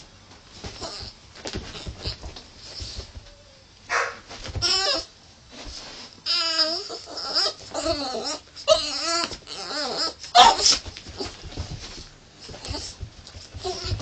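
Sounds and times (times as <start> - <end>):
dog harsh bark: 3.9 - 4.3, 10.4 - 10.8
dog howling and whining: 6.3 - 11.4.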